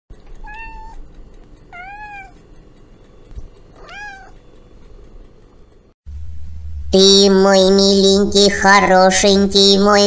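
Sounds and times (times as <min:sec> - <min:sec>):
cat meowing: 0:00.4 - 0:01.0, 0:01.7 - 0:02.4, 0:03.8 - 0:04.4.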